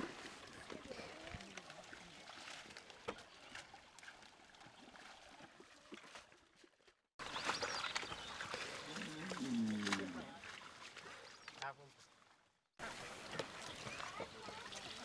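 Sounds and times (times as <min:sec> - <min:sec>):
splashing of wet plants and net: 0:00.0 - 0:15.0
water drips: 0:07.2 - 0:11.7.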